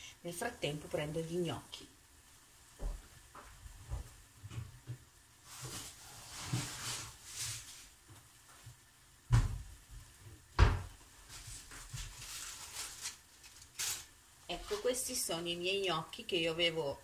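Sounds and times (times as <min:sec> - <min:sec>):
rustling handling noise: 0:03.8 - 0:08.9, 0:11.1 - 0:15.2
door thumping shut: 0:10.6 - 0:10.9.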